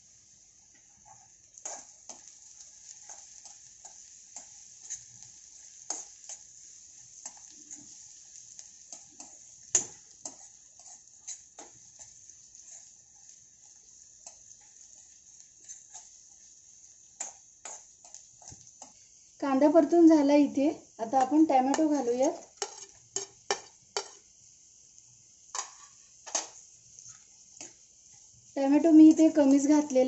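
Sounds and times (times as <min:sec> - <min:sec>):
onion sizzling in hot oil: 0:00.0 - 0:30.0
stirring scrapes against pan: 0:00.7 - 0:19.3, 0:21.2 - 0:24.3.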